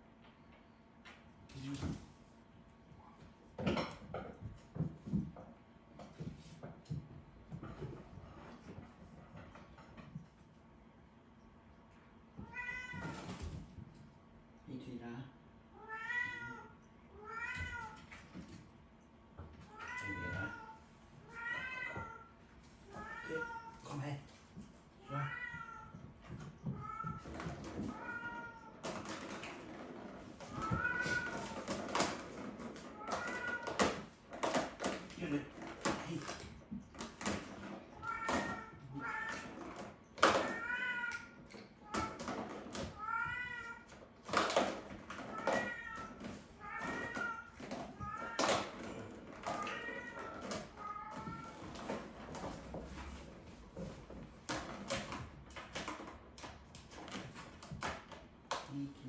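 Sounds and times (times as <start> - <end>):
cat meowing: 12.4 - 13.4, 15.7 - 18.2, 19.6 - 24.0, 25.0 - 28.9, 30.4 - 32.0, 37.9 - 44.0, 45.1 - 52.0.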